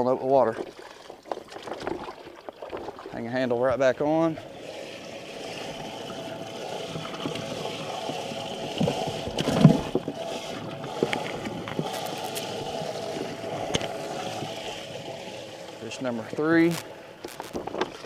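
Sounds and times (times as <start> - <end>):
water splashes and knocks: 0.3 - 3.8, 5.7 - 15.0
water gurgling into bag: 0.6 - 3.2, 4.2 - 16.0
pump humming: 3.8 - 18.0.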